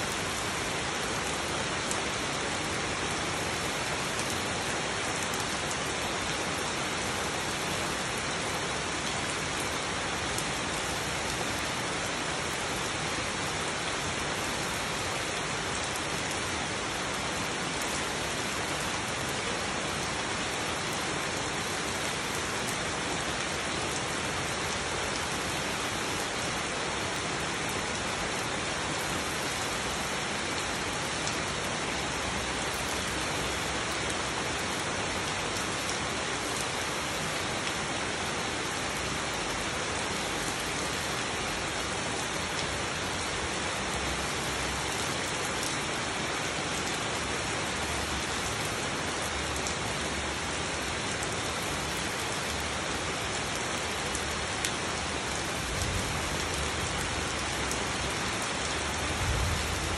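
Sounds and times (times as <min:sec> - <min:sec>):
rain falling on leaves: 0:00.0 - 0:59.9.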